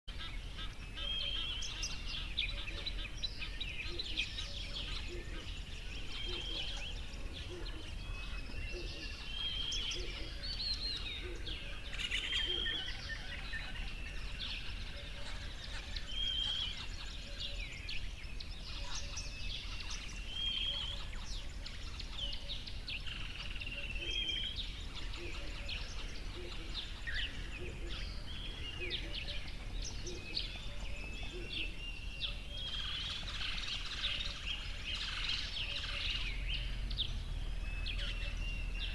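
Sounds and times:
birds chirping: 0:00.1 - 0:38.9
low outdoor rumble: 0:34.6 - 0:38.9.

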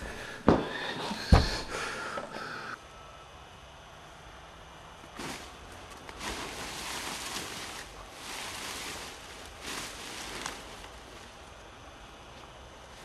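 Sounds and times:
dry corn stalks rustling: 0:05.0 - 0:13.0.

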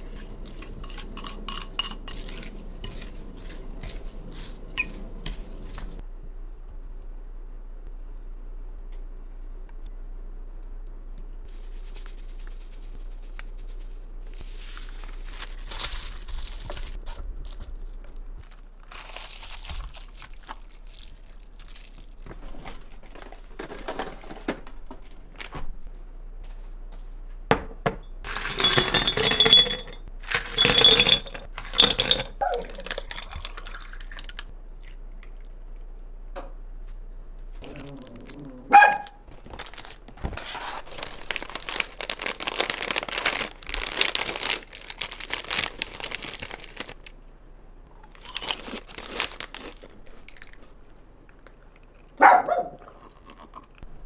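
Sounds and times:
dishes and utensils clattering: 0:28.3 - 0:33.5.

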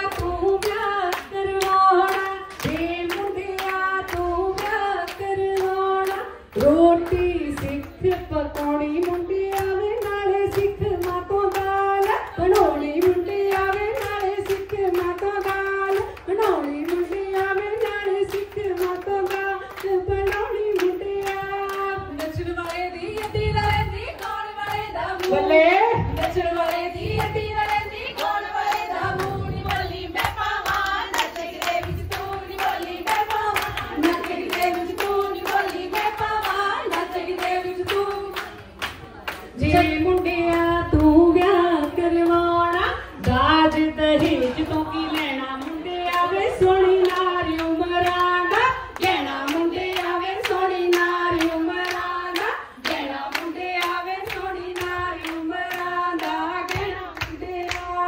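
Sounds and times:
rhythmic handclapping: 0:00.0 - 0:58.0
women singing: 0:00.0 - 0:58.0.

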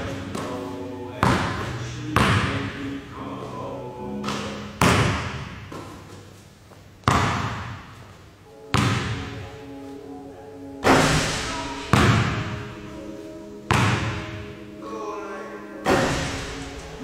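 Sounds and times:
background music: 0:00.0 - 0:07.0, 0:08.1 - 0:17.0
basketball thudding in gym: 0:07.0 - 0:08.0.

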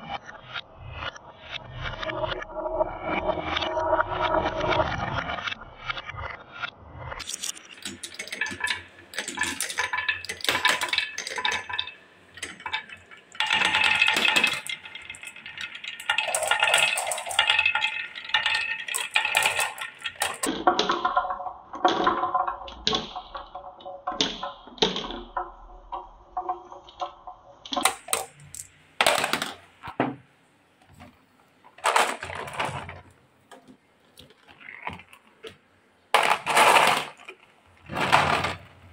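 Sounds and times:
marbles clinking into plastic truck: 0:07.2 - 0:29.8, 0:31.7 - 0:33.1, 0:34.5 - 0:38.9
marbles rattling down wooden track: 0:07.2 - 0:29.8, 0:31.7 - 0:33.1, 0:34.5 - 0:38.9.

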